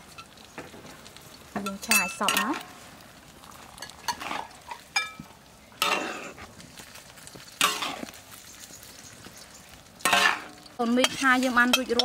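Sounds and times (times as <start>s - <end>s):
frying sizzle: 0.0s - 12.0s
metal spatula scraping wok: 3.8s - 5.1s, 5.8s - 6.5s, 7.4s - 12.0s.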